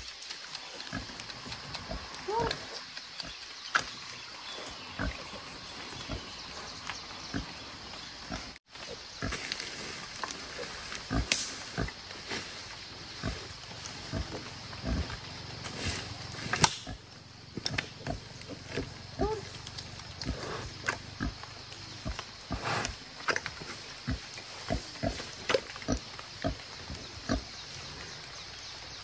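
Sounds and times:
dry branches and leaves crackling: 0.0s - 28.8s.

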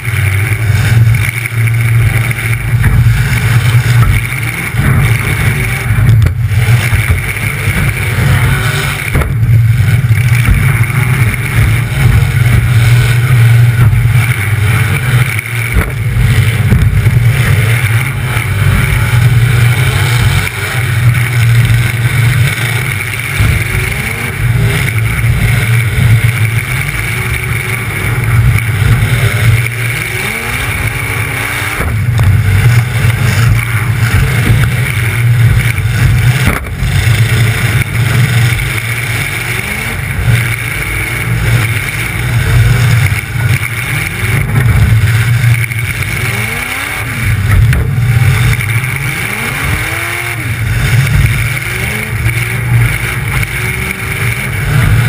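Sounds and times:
car engine revving through open exhaust: 0.0s - 55.0s.

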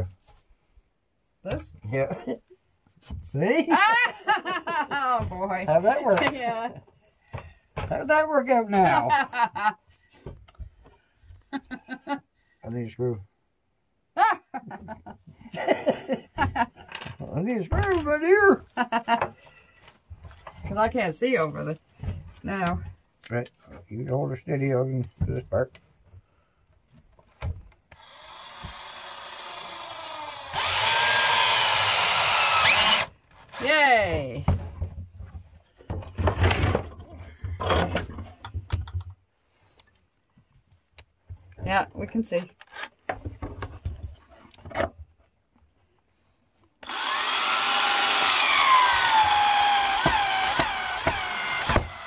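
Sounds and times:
power drill driving screw into wood: 27.9s - 33.7s, 46.8s - 52.0s.

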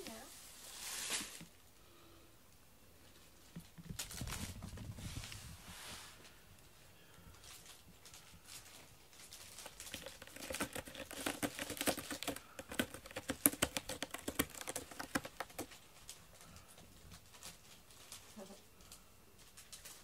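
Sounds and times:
cat scratching cardboard: 9.5s - 15.8s.

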